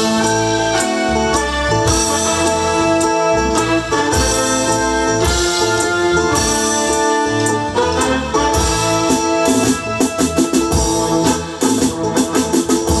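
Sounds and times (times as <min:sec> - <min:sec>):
drum kit beat: 0:00.0 - 0:13.0
electronic keyboard chords: 0:00.0 - 0:13.0.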